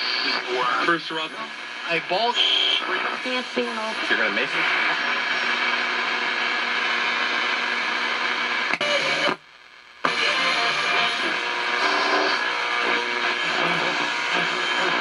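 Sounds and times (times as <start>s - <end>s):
radio static: 0.0s - 15.0s
radio whistle tones: 2.2s - 3.1s.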